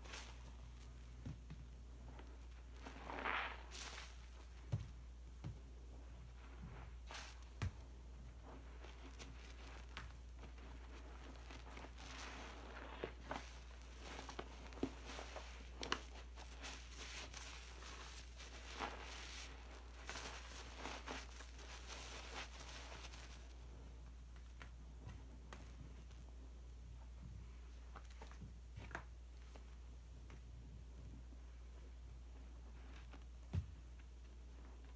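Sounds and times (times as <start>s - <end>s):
sponges squelching in foam: 2.0s - 4.8s, 5.9s - 23.6s.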